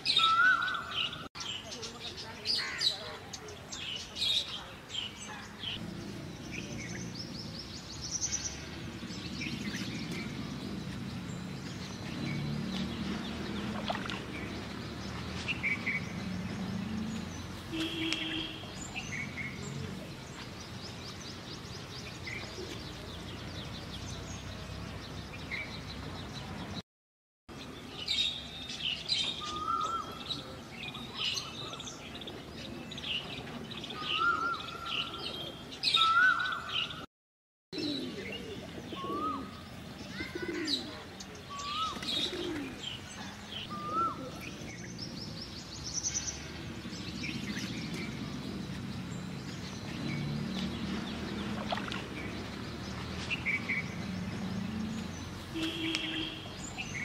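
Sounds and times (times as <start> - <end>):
birds chirping and calling: 0.0 - 26.8, 27.7 - 37.1, 37.8 - 57.0
rising whistled bird calls: 35.9 - 37.0.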